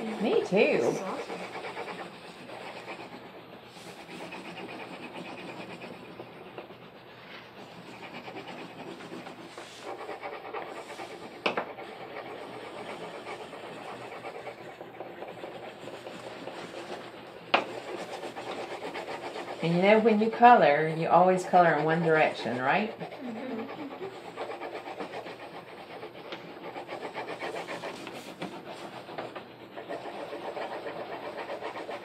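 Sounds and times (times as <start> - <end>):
crayon rubbing on paper: 0.0 - 32.0.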